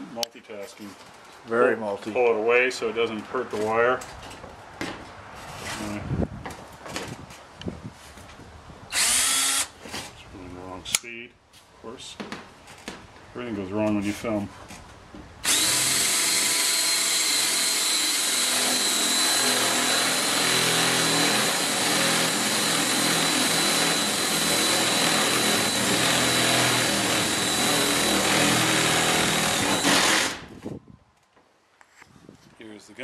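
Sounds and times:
drill boring through aluminum: 8.9s - 9.7s, 15.4s - 30.4s.

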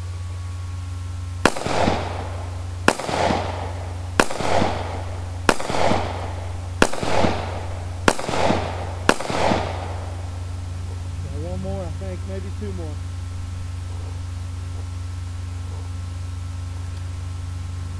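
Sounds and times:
pistol shots with echo: 1.4s - 11.8s.

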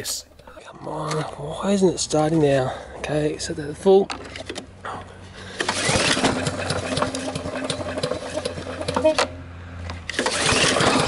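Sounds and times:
lawn mower engine pull-starting: 4.1s - 11.0s.

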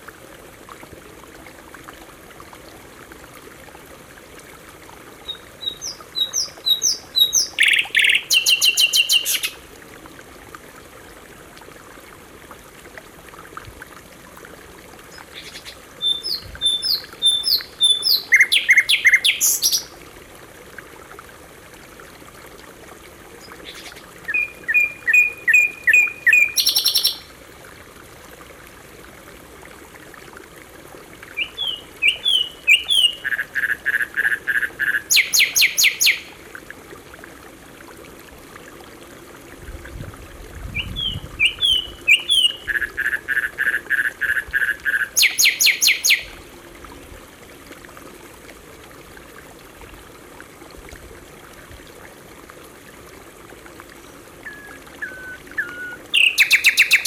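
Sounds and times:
flowing water: 0.0s - 57.0s
canary singing: 54.5s - 57.0s.

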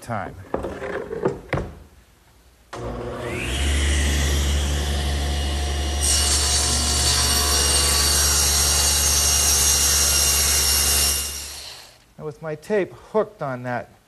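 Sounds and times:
table saw motor hum: 2.8s - 11.9s
saw blade cutting wood: 3.2s - 12.0s.

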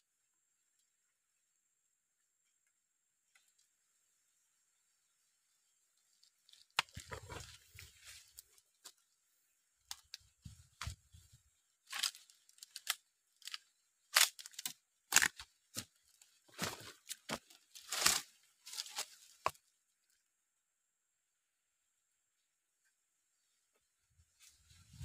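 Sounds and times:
rustling of plants: 5.4s - 19.6s, 24.2s - 25.0s
footsteps crunching through dry leaves: 11.9s - 13.6s, 16.5s - 19.5s.

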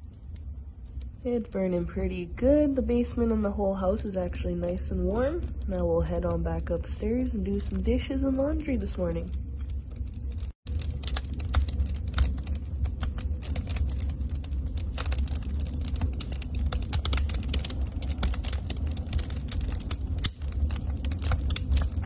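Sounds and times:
low rumble of stove: 0.0s - 22.0s
wood fire crackling and popping: 0.0s - 22.0s.

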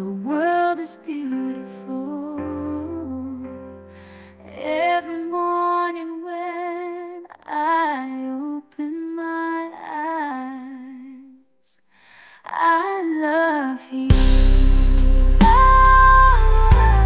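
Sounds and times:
woman singing pop melody: 0.0s - 17.0s.

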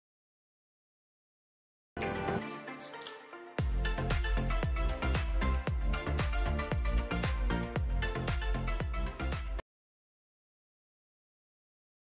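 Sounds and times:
melodic notes: 2.0s - 9.6s
heavy beat with deep bass: 3.6s - 9.6s.

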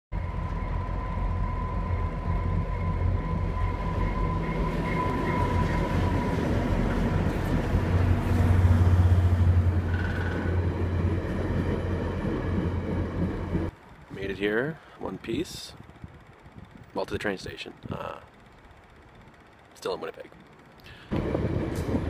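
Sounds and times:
thin steady whine: 0.1s - 22.0s
train rumbling: 0.1s - 22.0s.

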